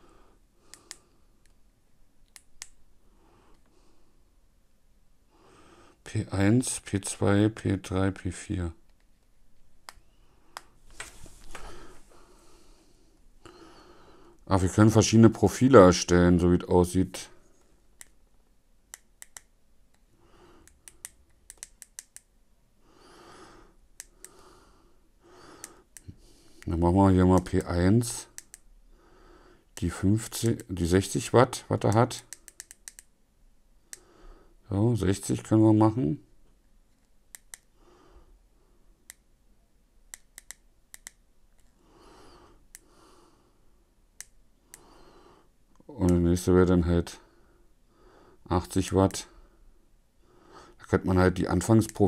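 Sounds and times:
soft hissy noises: 5.2s - 29.1s.

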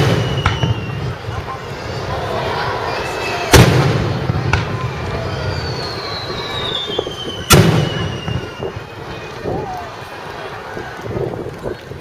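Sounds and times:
firework booms: 0.0s - 1.5s, 3.5s - 8.8s
high whistle gliding down: 4.8s - 8.9s.

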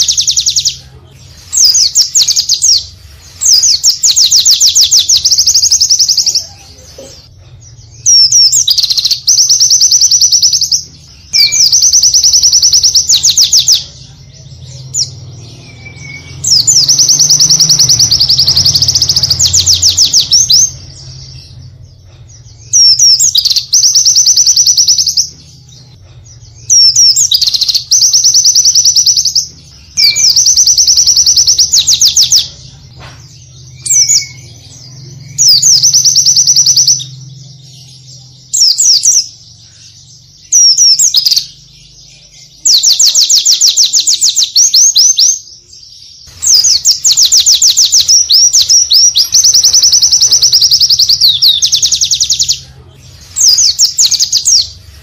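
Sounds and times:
bird singing fast trills: 0.0s - 0.8s, 1.5s - 6.6s, 7.7s - 52.7s, 53.3s - 55.0s.

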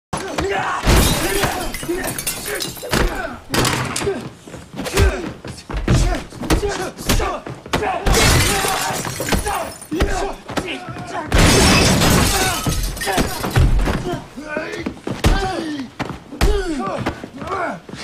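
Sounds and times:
men grunting and straining: 0.2s - 18.0s
glass shattering: 0.8s - 3.8s, 8.1s - 10.2s, 11.4s - 13.9s.

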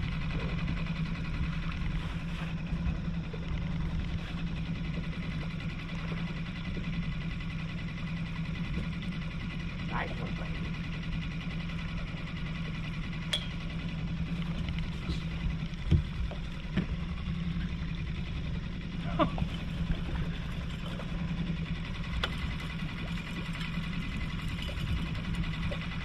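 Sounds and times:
outboard motor running: 0.0s - 26.0s
gear knocking on boat: 13.2s - 17.4s.

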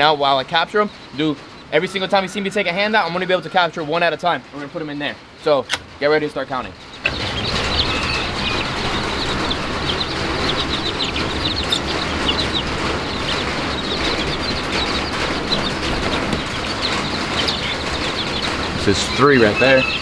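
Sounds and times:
chicks chirping: 0.0s - 20.0s
rain on a metal roof: 7.2s - 20.0s.

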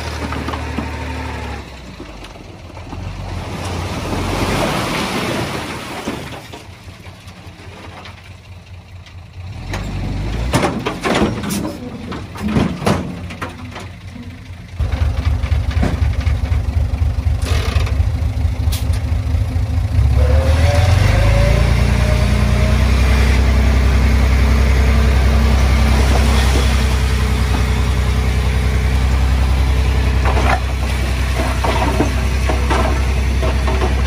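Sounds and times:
heavy diesel engine under load: 0.0s - 34.0s.

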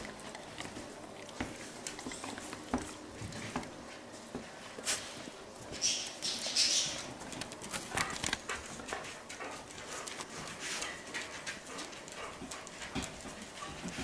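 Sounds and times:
pets licking wet smacking: 0.0s - 3.8s.

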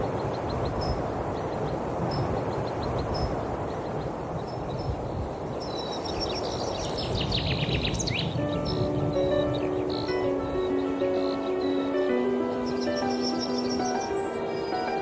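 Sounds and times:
bird twittering song: 0.0s - 15.0s
birds chirping: 0.0s - 15.0s
music: 8.3s - 15.0s.

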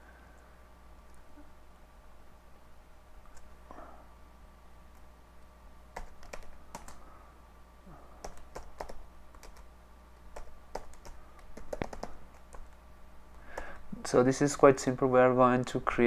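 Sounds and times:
computer keyboard typing: 6.0s - 7.0s, 8.2s - 9.7s, 10.3s - 12.8s.

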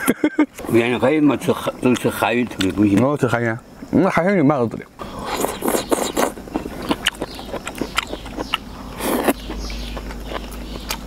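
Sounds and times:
person chewing: 5.0s - 11.0s.

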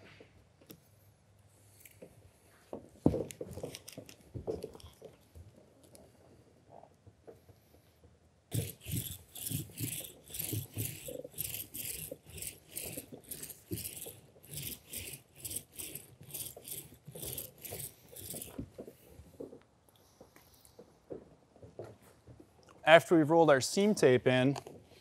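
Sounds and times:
seam roller rolling over rubber: 8.5s - 19.6s.

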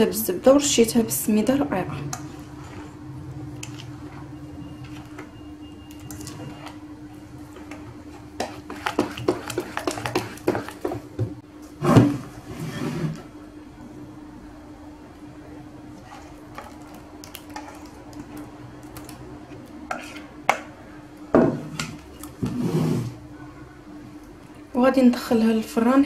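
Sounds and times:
spatula stirring thick batter: 1.9s - 11.2s, 15.9s - 19.2s, 19.9s - 20.4s
spatula tapping steel bowl: 8.4s - 11.0s.

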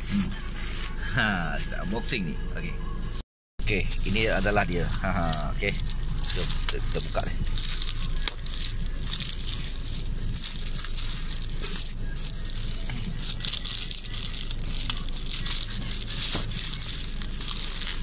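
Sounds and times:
steady low hum: 0.0s - 18.0s
plastic mailer bag crinkling: 3.7s - 18.0s.

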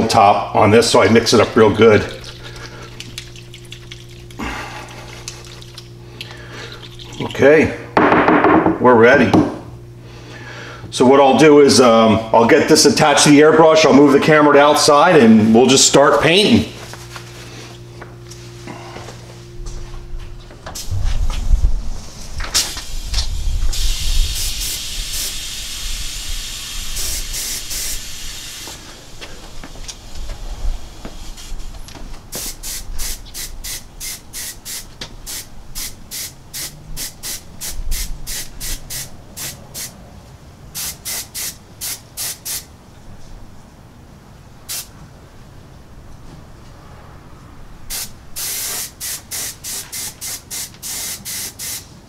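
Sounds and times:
airbrush spray hissing: 22.6s - 28.8s, 31.0s - 31.7s, 32.3s - 40.0s, 40.8s - 42.7s, 44.7s - 44.9s, 47.9s - 51.9s.

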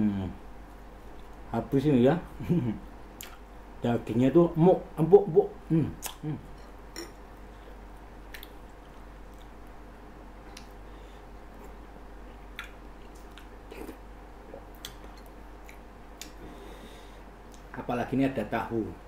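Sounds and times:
steady low hum: 0.0s - 19.0s
man chewing food: 0.7s - 1.4s, 3.2s - 3.4s, 6.0s - 17.7s.

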